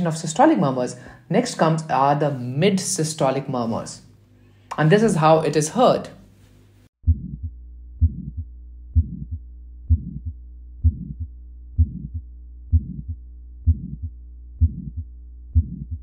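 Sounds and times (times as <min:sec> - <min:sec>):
low steady hum: 0:00.0 - 0:16.0
heart murmur: 0:07.0 - 0:16.0
heartbeat: 0:07.0 - 0:16.0.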